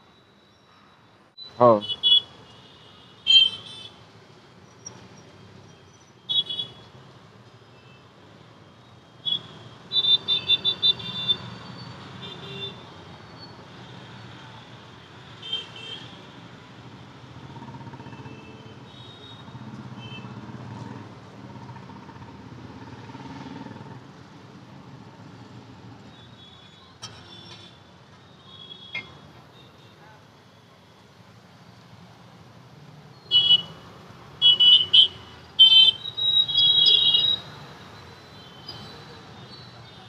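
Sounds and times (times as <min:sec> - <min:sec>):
engines passing: 0:16.5 - 0:18.4, 0:19.5 - 0:26.1
car horn beeps: 0:34.4 - 0:37.4.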